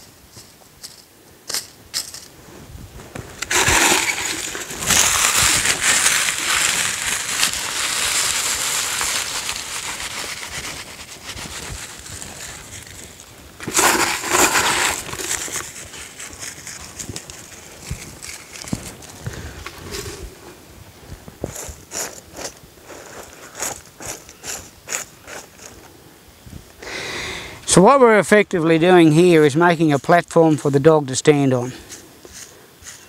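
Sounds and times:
dry leaves crackling and rustling: 3.4s - 20.3s.

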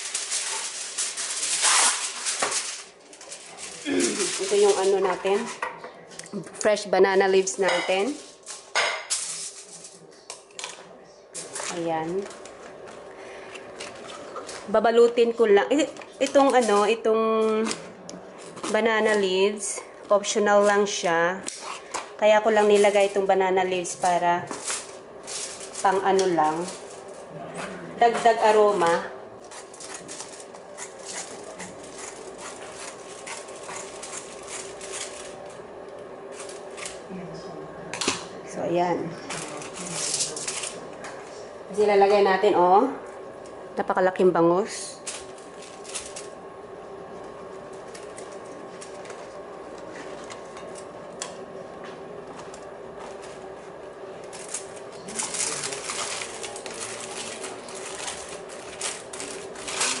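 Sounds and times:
banana leaves crinkling: 0.0s - 5.6s, 7.2s - 10.8s, 23.9s - 27.3s, 28.2s - 35.7s, 39.3s - 41.0s, 44.9s - 46.4s, 47.1s - 51.4s, 52.2s - 60.0s
faint steady hum: 0.0s - 60.0s.

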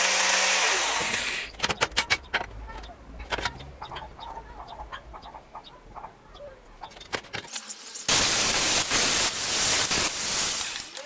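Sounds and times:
loud rushing hiss: 8.1s - 10.9s.

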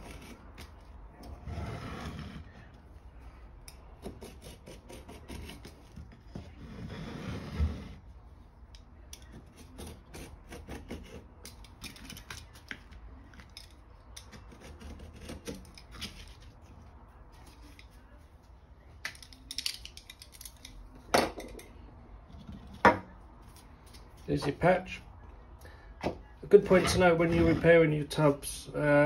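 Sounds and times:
blade cutting with clicks and scratches: 0.0s - 2.6s, 3.6s - 7.0s, 8.7s - 16.6s.

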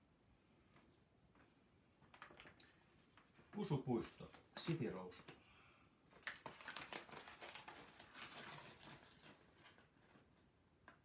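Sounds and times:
paper bag rustling and crinkling: 6.1s - 10.4s.

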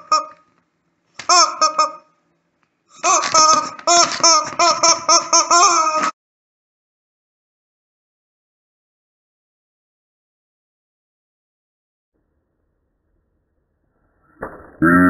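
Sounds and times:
rubber chicken squawking: 0.0s - 0.4s, 1.2s - 2.1s, 3.0s - 6.1s.

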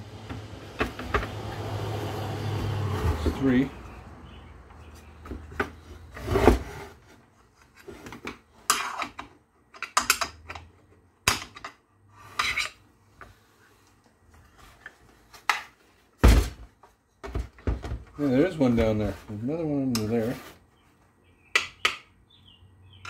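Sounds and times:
tools scraping metal parts: 8.6s - 10.7s, 11.3s - 12.8s.

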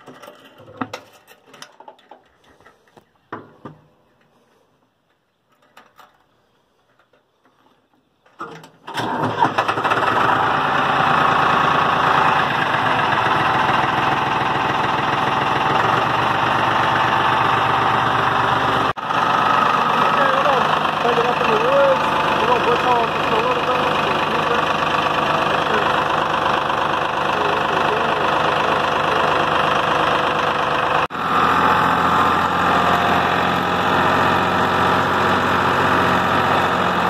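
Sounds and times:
tractor diesel engine starting and idling: 8.4s - 37.0s.

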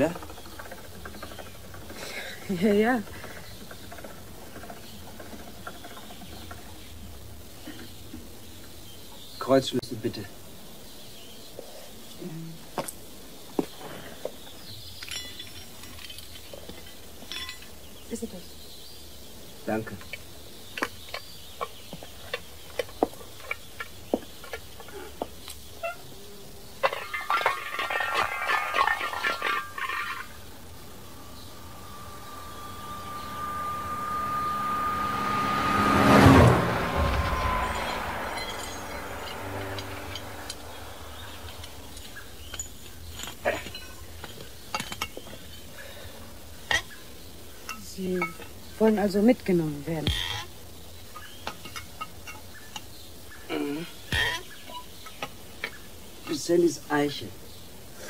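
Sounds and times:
metallic clatter with ringing: 15.0s - 17.7s, 26.8s - 35.0s, 36.9s - 45.2s
low steady hum: 26.6s - 56.2s
rushing noise: 29.6s - 42.4s.

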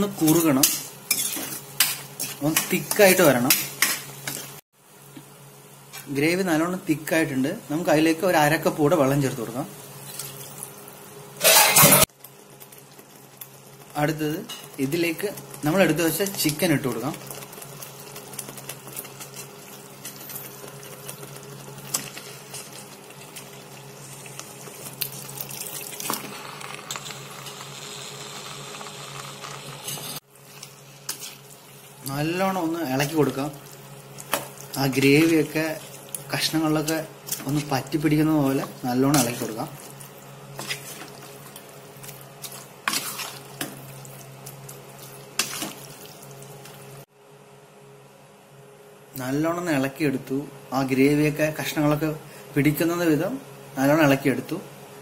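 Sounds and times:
spatula scraping pan: 0.2s - 4.4s, 11.4s - 12.1s, 38.6s - 41.6s, 42.4s - 43.8s
gravy bubbling in a pan: 12.0s - 47.1s
spatula stirring wet gravy: 38.5s - 46.2s.

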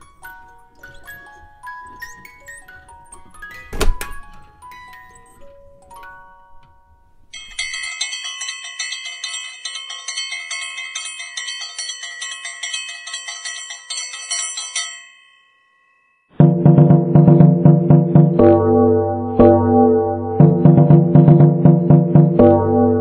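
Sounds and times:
high-pitched tinkling melody: 0.0s - 16.4s
keyboard music with heavy bass: 16.4s - 23.0s.

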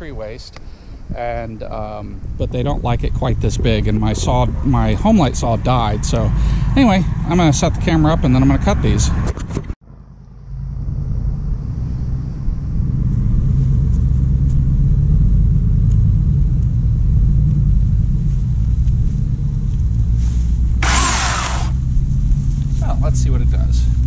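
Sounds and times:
steady low rumble: 0.0s - 9.2s, 9.8s - 24.0s
electric chainsaw spinning up: 20.8s - 21.8s.

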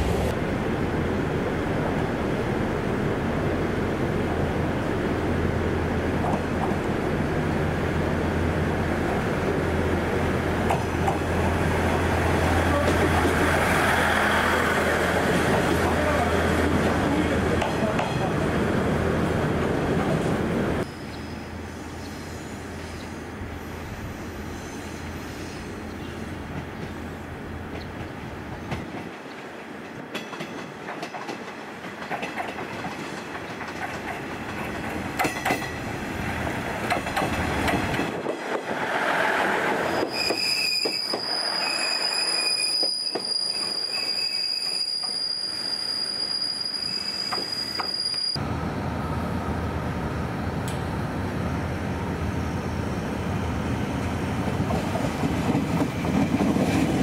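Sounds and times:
train rumbling on rails: 0.0s - 57.0s
high wheel squeal: 39.9s - 48.4s.

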